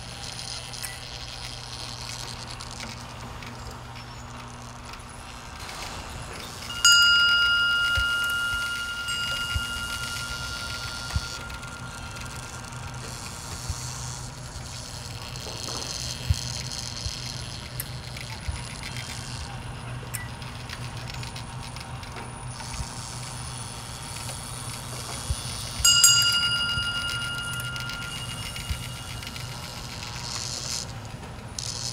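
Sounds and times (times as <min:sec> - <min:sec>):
low motor hum: 0:00.0 - 0:31.9
wooden mechanism ticks and clicks: 0:00.0 - 0:31.9
bell-like ring: 0:06.4 - 0:16.3, 0:24.9 - 0:30.9.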